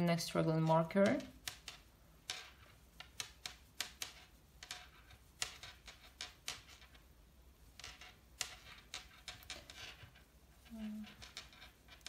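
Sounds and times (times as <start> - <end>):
crochet hook clicking on yarn: 0.5 - 1.9.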